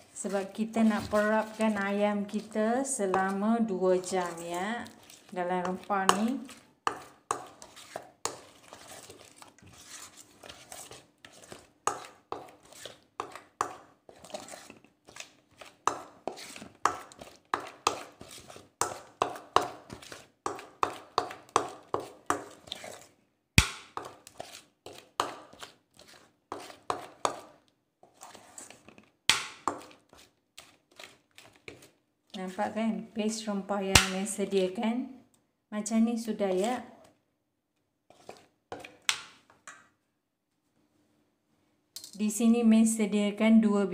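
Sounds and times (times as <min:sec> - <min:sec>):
spoon scraping metal bowl: 0:00.0 - 0:23.2, 0:24.0 - 0:29.0, 0:36.4 - 0:36.9, 0:38.1 - 0:39.1.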